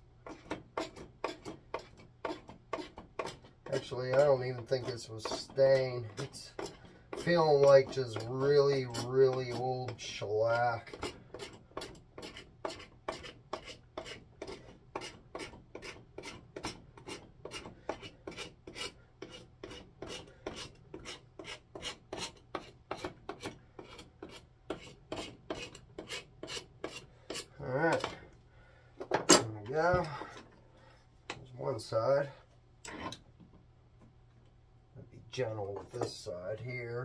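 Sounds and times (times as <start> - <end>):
knife scraping wood: 0.2 - 28.3.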